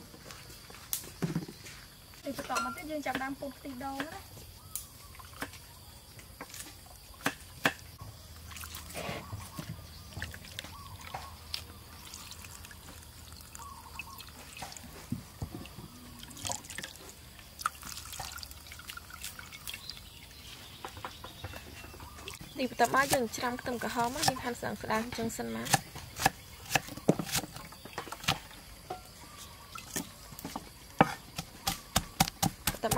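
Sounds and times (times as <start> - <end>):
liquid dripping into a bowl: 10.1 - 14.9, 16.2 - 20.2.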